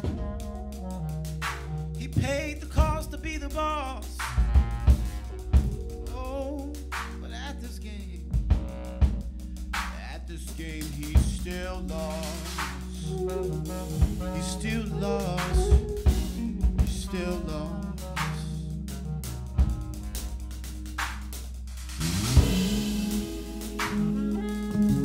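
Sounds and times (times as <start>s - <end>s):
electric bass: 0.0s - 25.0s
man singing into a microphone: 2.0s - 4.4s, 6.0s - 8.3s, 9.9s - 18.7s
drum kit snare and rimshot hits: 8.4s - 10.2s, 19.6s - 25.0s
guitar: 22.3s - 25.0s.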